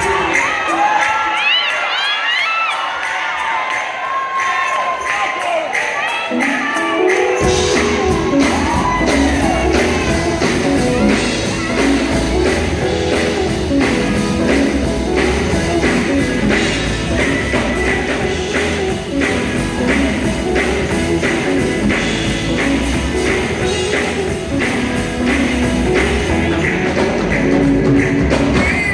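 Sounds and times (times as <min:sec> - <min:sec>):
keyboard: 0:00.0 - 0:28.9
drums beat: 0:06.6 - 0:28.9
bass guitar: 0:07.4 - 0:28.9.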